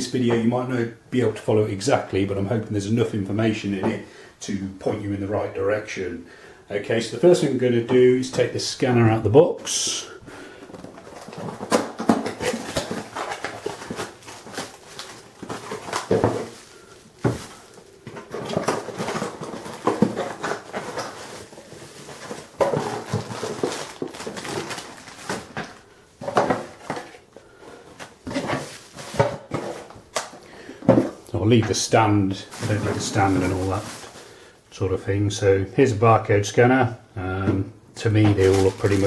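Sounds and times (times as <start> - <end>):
bubble wrap crinkling: 10.7 - 30.4, 32.4 - 34.5, 38.3 - 39.0.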